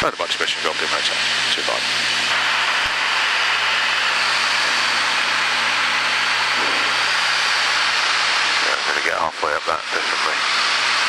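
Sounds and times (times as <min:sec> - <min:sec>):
piston engine and propeller droning: 0:00.0 - 0:11.0
rushing airflow: 0:02.2 - 0:08.7.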